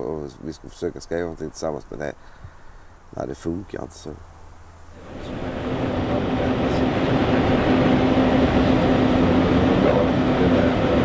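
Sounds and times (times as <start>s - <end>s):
engine and road noise inside coach: 4.8s - 11.0s.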